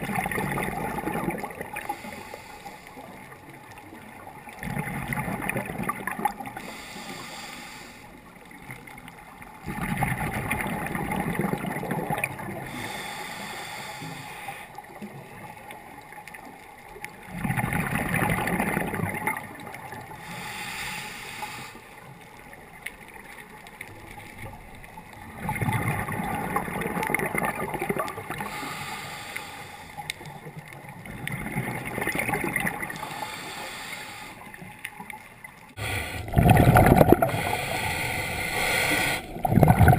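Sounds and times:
underwater exhalation bubbling: 0.0 - 2.0, 9.6 - 13.1, 17.3 - 19.6, 25.3 - 29.1, 35.8 - 39.9
regulator hiss: 12.7 - 14.6, 20.3 - 21.8, 37.3 - 39.3.

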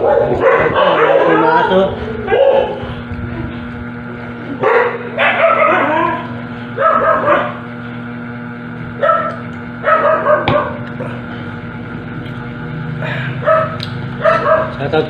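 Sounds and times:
dog barking: 0.0 - 2.8, 4.6 - 6.2, 6.8 - 7.6, 9.0 - 10.8, 13.4 - 14.8
steady low hum: 0.0 - 15.0.

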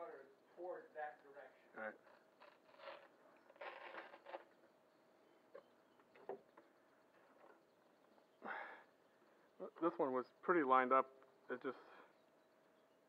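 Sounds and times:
short rustle: 2.1 - 4.5.

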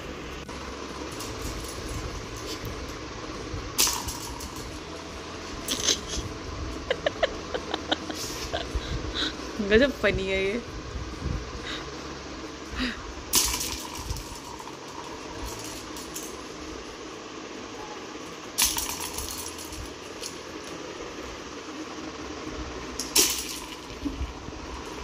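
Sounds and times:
plastic toy rattling: 0.9 - 2.7, 3.8 - 5.0, 13.3 - 16.6, 18.6 - 20.8, 23.0 - 25.0.

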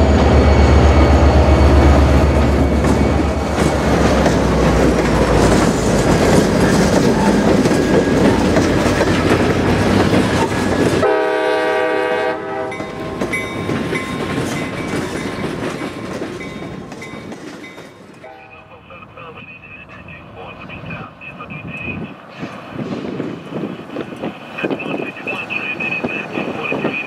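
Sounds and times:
locomotive engine rumble: 0.0 - 27.0
train cars clattering over rail joints: 2.6 - 11.0, 12.7 - 18.2
train horn blast: 10.9 - 13.3, 18.2 - 18.7.

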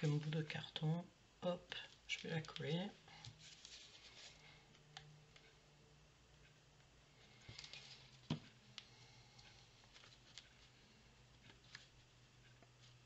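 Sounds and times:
faint low hum: 0.0 - 13.0
paper rustling: 2.2 - 4.6.

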